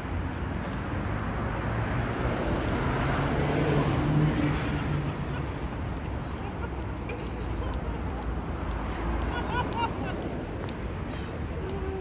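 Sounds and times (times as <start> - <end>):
vehicle passing by: 0.0 - 6.3.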